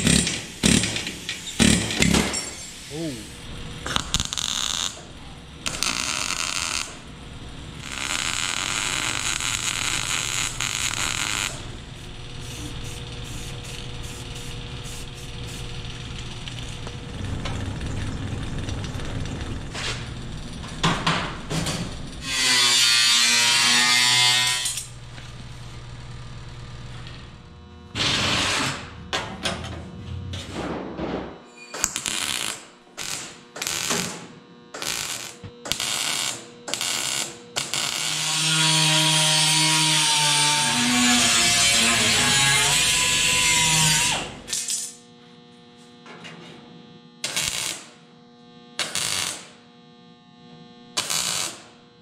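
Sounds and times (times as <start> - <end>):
power tools working steel: 0.0 - 3.3, 7.7 - 17.4, 22.2 - 25.0, 34.8 - 44.5
steady low hum: 0.0 - 22.5, 24.2 - 31.5.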